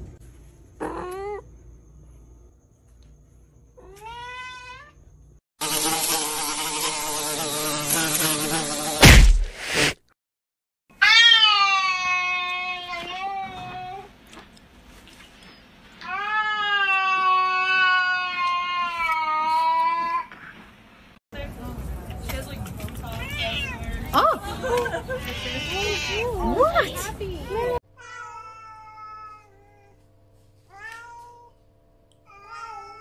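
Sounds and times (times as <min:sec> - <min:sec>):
sharp thump: 0:09.0 - 0:10.0
cat yowling: 0:11.0 - 0:13.3.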